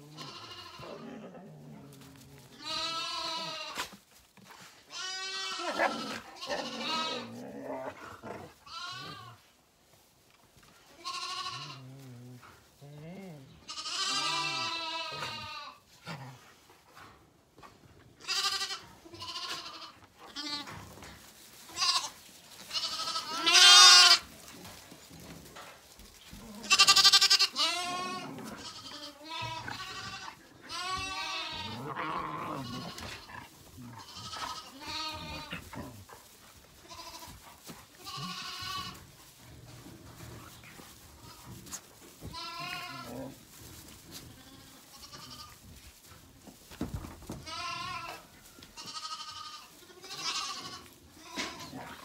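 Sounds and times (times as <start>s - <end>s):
lambs bleating: 0.0s - 1.3s, 2.5s - 3.9s, 4.9s - 7.6s, 8.2s - 9.4s, 10.9s - 12.5s, 13.6s - 15.8s, 18.2s - 20.9s, 21.7s - 24.3s, 26.3s - 36.2s, 36.8s - 39.1s, 41.1s - 43.4s, 44.1s - 45.6s, 47.3s - 52.0s.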